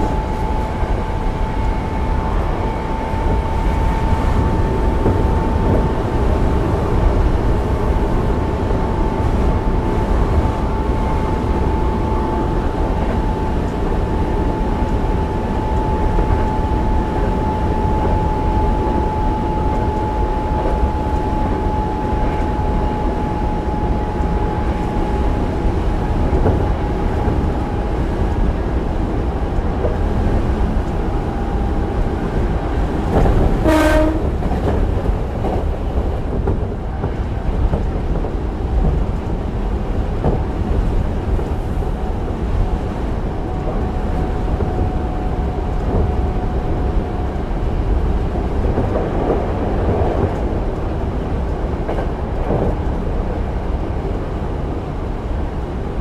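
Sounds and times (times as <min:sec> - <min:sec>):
train wheels rumbling on rail: 0:00.0 - 0:56.0
train horn blast: 0:33.1 - 0:34.7.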